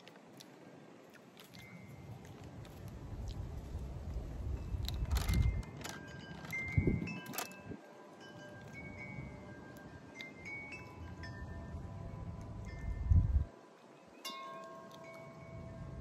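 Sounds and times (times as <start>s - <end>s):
wind chimes ringing: 5.4s - 16.0s.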